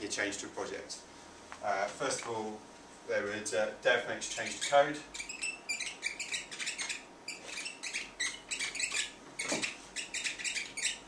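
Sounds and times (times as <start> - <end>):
marker squeaking on whiteboard: 4.3 - 11.0.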